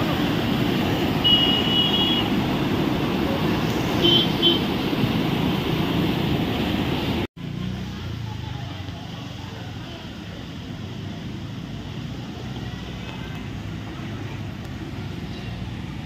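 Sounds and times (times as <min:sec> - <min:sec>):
river rushing in flood: 0:00.0 - 0:16.0
vehicle horn toots: 0:01.2 - 0:02.4, 0:04.0 - 0:04.7.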